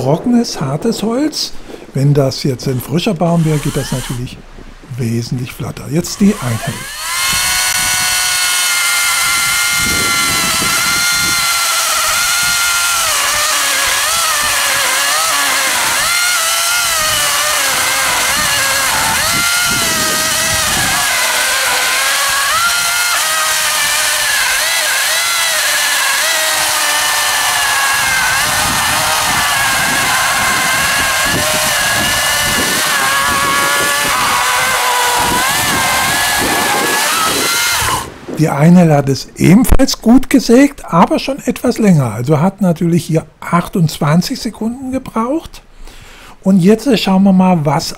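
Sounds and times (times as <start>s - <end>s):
electric chainsaw cutting log: 3.3s - 4.2s, 6.1s - 38.2s.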